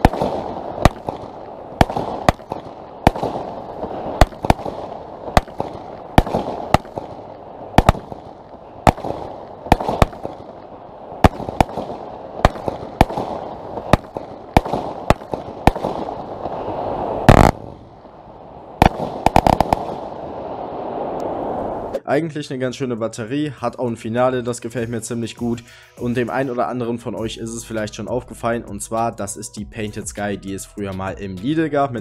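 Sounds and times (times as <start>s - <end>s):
firework shots and bursts: 0.0s - 21.6s
heavy firework blast: 0.0s - 22.0s.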